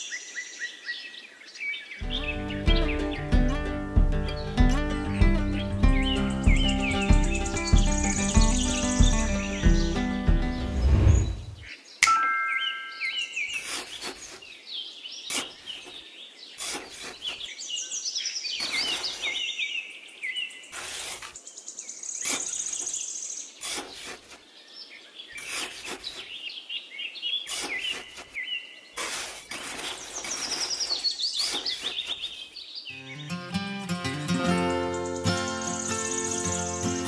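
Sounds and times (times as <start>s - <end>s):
small birds chirping: 0.0s - 37.0s
metal trowel scraping sand: 13.5s - 14.5s, 15.3s - 16.0s, 16.6s - 17.5s, 18.6s - 19.5s, 20.7s - 21.4s, 22.2s - 23.0s, 23.6s - 24.4s, 25.4s - 26.4s, 27.4s - 28.4s, 29.0s - 32.5s.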